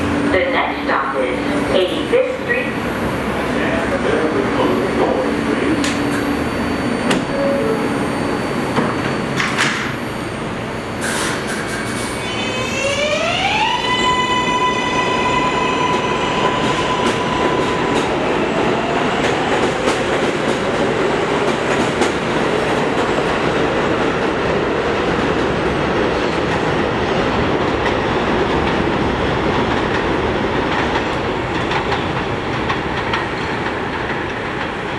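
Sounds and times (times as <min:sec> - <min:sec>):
train doors shutting: 0:01.4 - 0:23.3
two-note door chime: 0:07.0 - 0:08.6
steel wheels clattering on rail: 0:08.7 - 0:10.1, 0:19.0 - 0:34.9.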